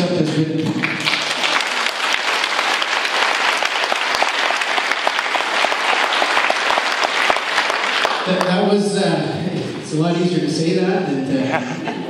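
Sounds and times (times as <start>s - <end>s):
audience applauding: 0.6s - 8.6s.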